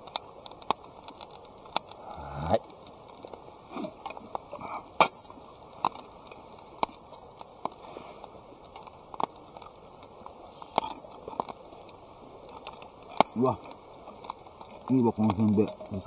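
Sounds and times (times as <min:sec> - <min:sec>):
campfire crackling: 0:00.0 - 0:16.0
faint steady hiss: 0:00.0 - 0:16.0.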